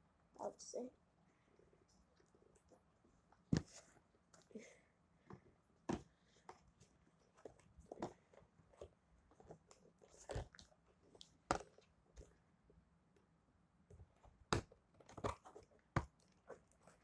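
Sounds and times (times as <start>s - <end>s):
scissors cutting cardboard: 14.5s - 17.0s.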